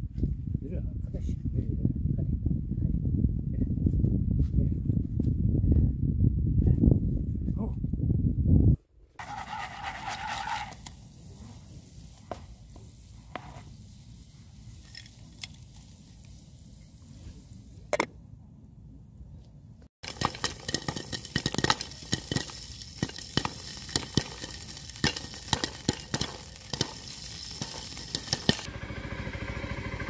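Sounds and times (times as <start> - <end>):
oil sizzling: 9.2 - 17.9, 20.0 - 28.7
corn kernels popping: 20.0 - 28.7.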